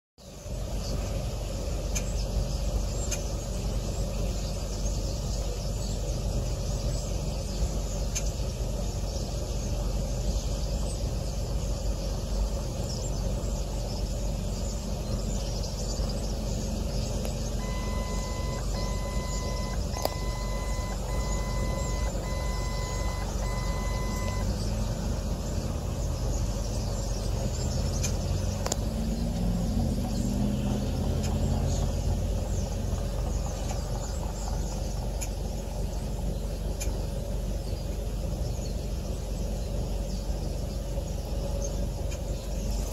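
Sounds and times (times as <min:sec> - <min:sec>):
low rumble of traffic: 0:00.2 - 0:42.9
engine accelerating: 0:00.4 - 0:42.9
electronic reversing beeps: 0:17.5 - 0:24.6.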